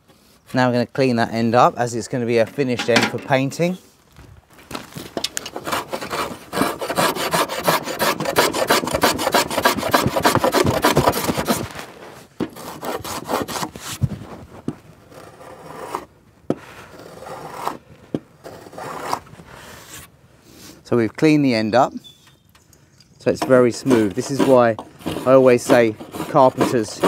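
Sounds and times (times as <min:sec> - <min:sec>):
plane scraping wood: 0:05.5 - 0:11.6, 0:12.5 - 0:14.0, 0:15.1 - 0:16.1, 0:16.9 - 0:17.8, 0:18.4 - 0:19.2, 0:23.3 - 0:27.0.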